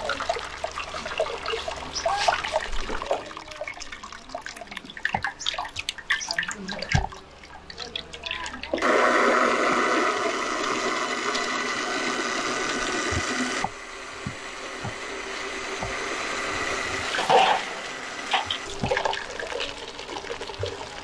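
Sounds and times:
blender running: 8.8 - 21.0.

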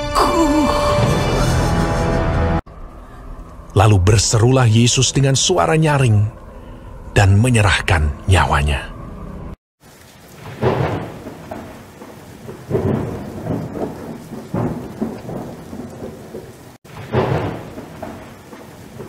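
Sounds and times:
steady rain: 9.8 - 19.0
rolling thunder: 10.3 - 19.0.

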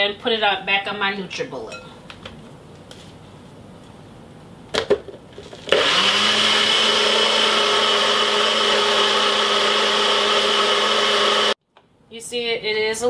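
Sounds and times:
blender motor running: 5.6 - 11.6.

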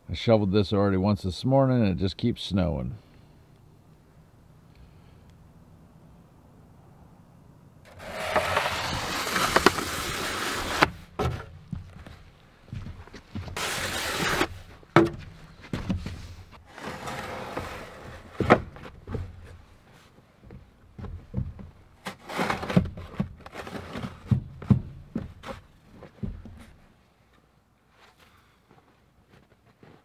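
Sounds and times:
snow shovel scraping through snow: 7.9 - 10.9, 13.6 - 14.6.

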